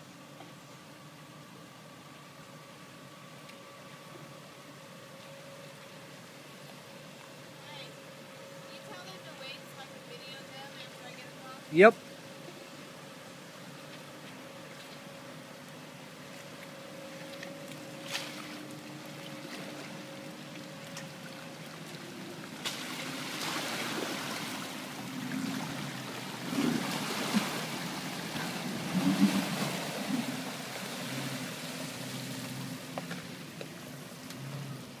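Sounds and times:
tyres splashing through water: 16.2s - 33.6s.

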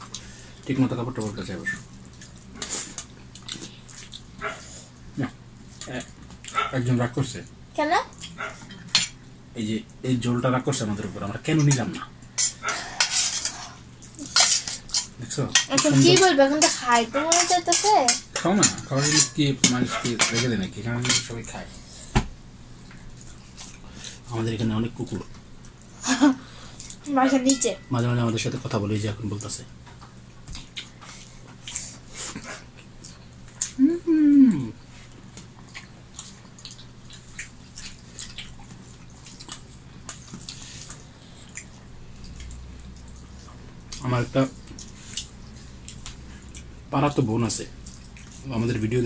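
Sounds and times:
people chewing: 0.0s - 6.9s, 10.9s - 24.3s, 25.0s - 27.6s, 29.8s - 46.9s, 47.7s - 48.9s
fingers mixing food on steel plates: 10.9s - 21.6s, 26.8s - 33.8s.

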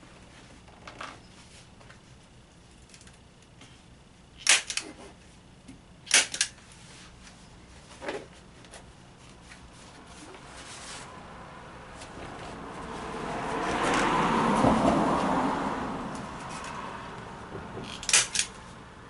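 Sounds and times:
staple gun firing: 4.4s - 4.8s, 6.1s - 6.5s, 17.9s - 18.5s.

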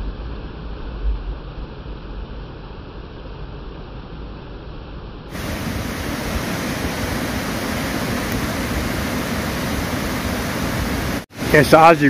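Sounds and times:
water rushing down waterfall: 5.3s - 12.0s.

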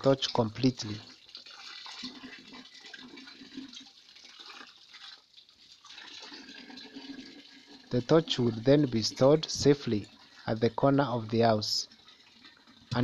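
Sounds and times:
water running from tap and splashing: 0.0s - 13.0s.

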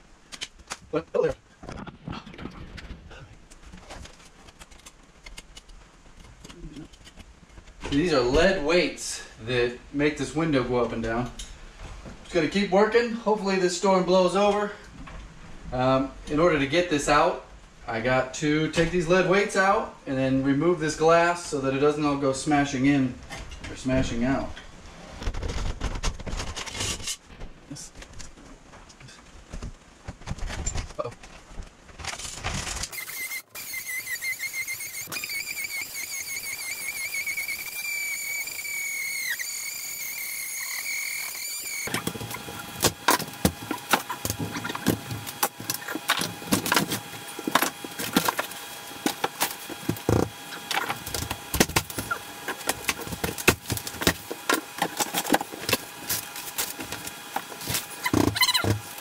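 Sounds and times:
high wavering squeal: 32.9s - 42.6s
steady hum: 33.0s - 59.0s
wood framing being broken out: 41.7s - 59.0s.

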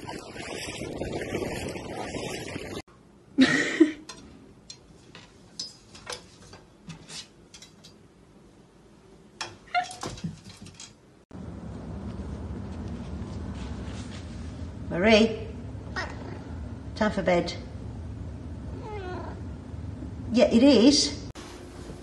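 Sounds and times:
wind buffeting microphone: 0.0s - 2.8s
cat yowling and meowing: 18.8s - 19.4s.

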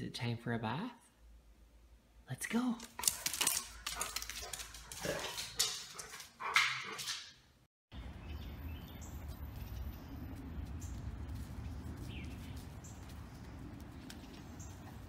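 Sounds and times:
outdoor background hiss: 0.0s - 3.0s.

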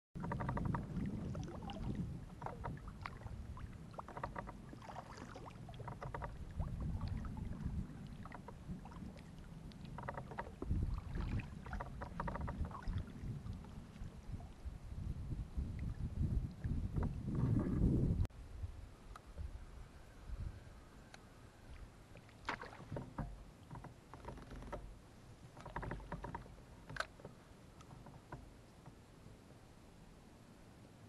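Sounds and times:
paddle pulling through water: 0.2s - 18.1s, 21.2s - 30.0s
wind rumble on microphone: 0.2s - 22.0s.

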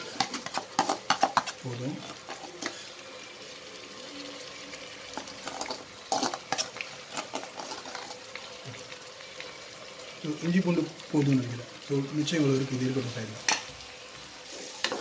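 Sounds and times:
spoon scraping steel bowl: 0.0s - 1.6s, 5.4s - 8.2s
onions sizzling in oil: 0.0s - 15.0s.

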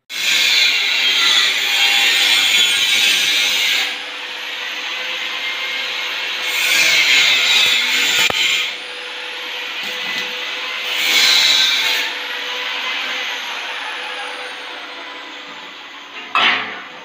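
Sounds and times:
arc welding crackle: 0.1s - 12.4s.

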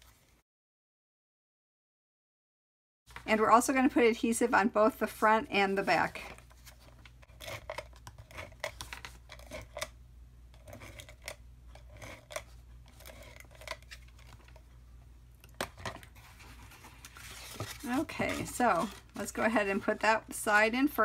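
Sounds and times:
paper handling: 15.6s - 20.0s.

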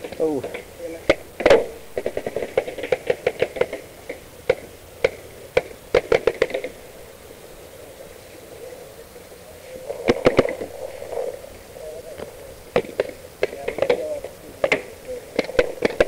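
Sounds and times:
paintball markers firing: 0.0s - 7.0s, 10.0s - 11.3s, 12.2s - 16.0s.

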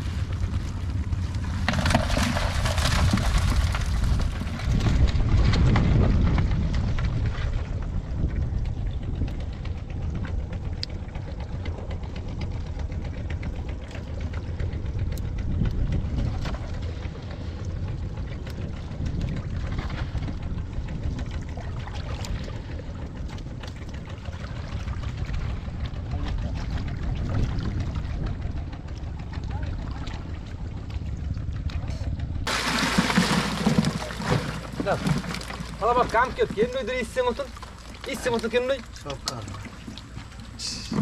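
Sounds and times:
steady low rumble: 0.0s - 41.0s
wet clicks and rustling: 37.6s - 40.6s.

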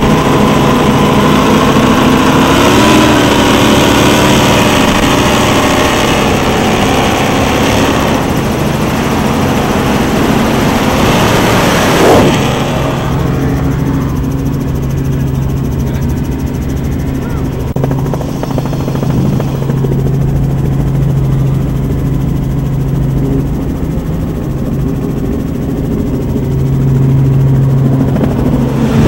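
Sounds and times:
helicopter engine and rotor: 0.0s - 29.0s
powerboat engines running: 0.0s - 29.0s
short loud sweep: 11.5s - 13.3s.

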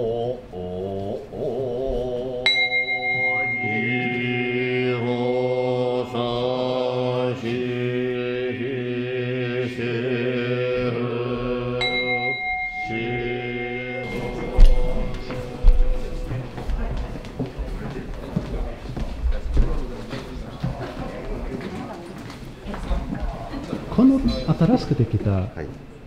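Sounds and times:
men chanting in unison: 0.0s - 2.7s, 3.4s - 17.1s
small bell ringing: 2.5s - 4.8s, 11.8s - 15.4s.

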